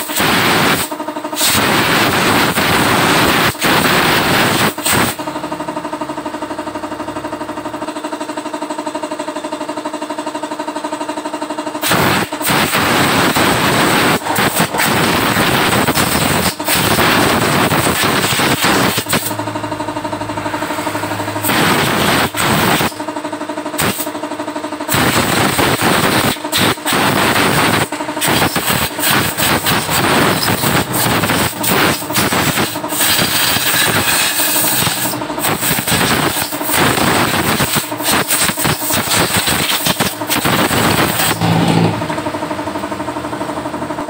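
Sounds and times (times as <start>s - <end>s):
pulsing machine: 0.0s - 44.0s.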